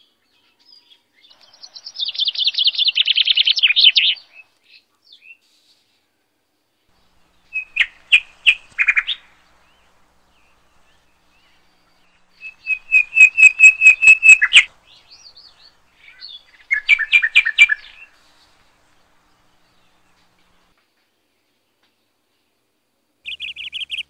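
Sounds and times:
small bird chirping: 1.3 - 5.4, 6.9 - 20.7, 23.2 - 24.0.

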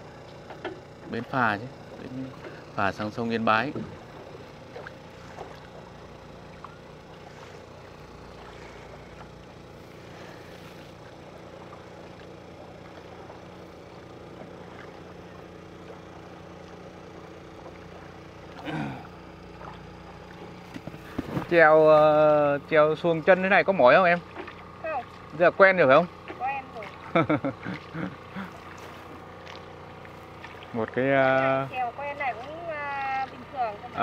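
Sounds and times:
small boat humming: 0.0 - 34.0.

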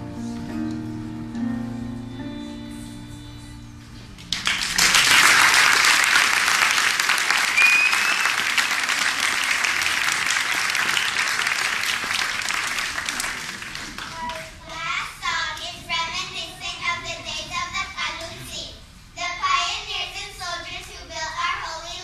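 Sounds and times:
audience applause: 4.3 - 14.6.

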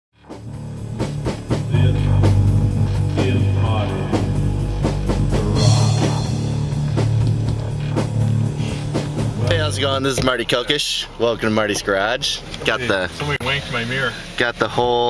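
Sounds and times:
rock music with drums bass guitar: 0.2 - 10.4.

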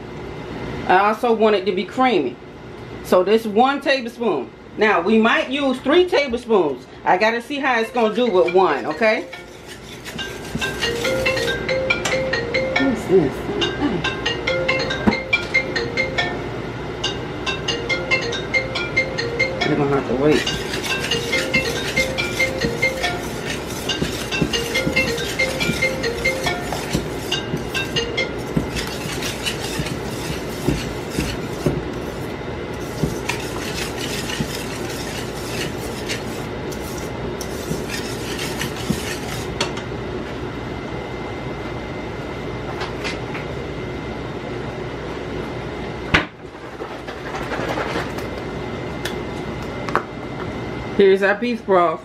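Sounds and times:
steady background hum: 0.0 - 52.0
metal utensil scraping a pot: 9.1 - 11.6, 20.3 - 39.5.

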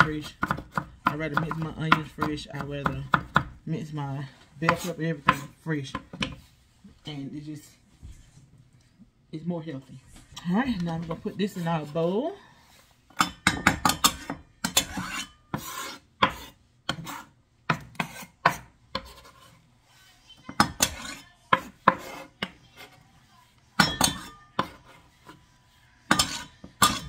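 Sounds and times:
utensil scraping a cutting board: 14.1 - 20.0, 20.8 - 23.0.

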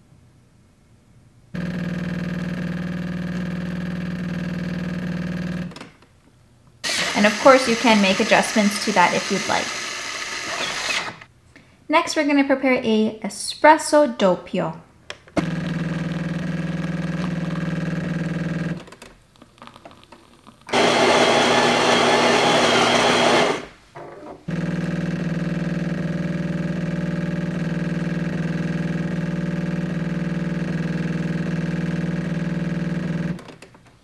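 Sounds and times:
coffee beans grinding: 6.9 - 10.8, 19.4 - 23.7
espresso machine pump humming: 6.9 - 11.1, 15.4 - 18.8, 20.7 - 23.7, 24.5 - 33.4.

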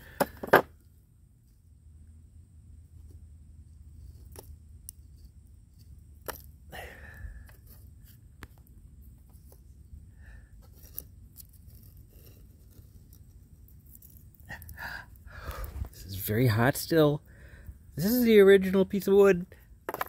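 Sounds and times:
low steady rumble: 0.0 - 18.3
charred wood and sand handled: 2.8 - 17.2.

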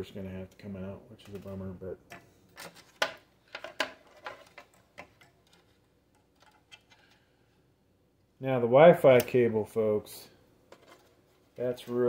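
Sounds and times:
hardware clicks and taps: 0.5 - 7.2.

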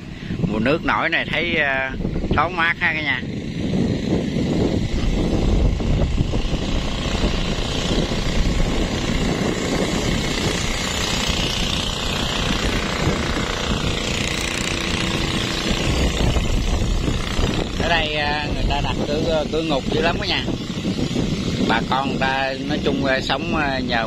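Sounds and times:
small boat engine running: 0.0 - 24.0.

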